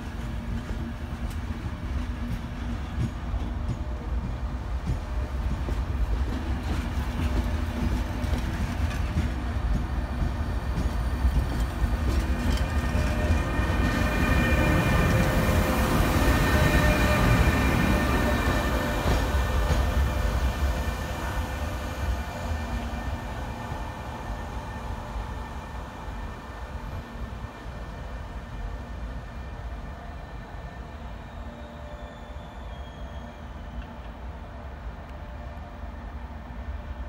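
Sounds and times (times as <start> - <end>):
train wheels rumbling on rail: 0.0 - 37.0
rail joint clicks: 0.2 - 20.4, 33.7 - 34.2.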